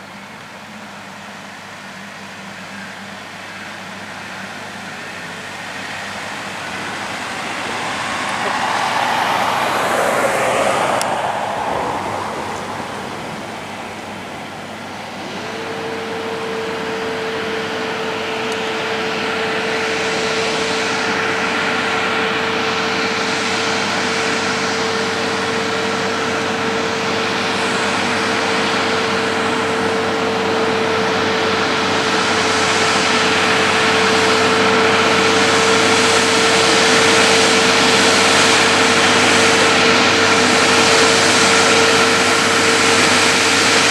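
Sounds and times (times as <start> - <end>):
steady engine whine: 0.0 - 43.9
diesel truck engine under load: 3.8 - 19.6
vehicle passing by: 5.1 - 15.6.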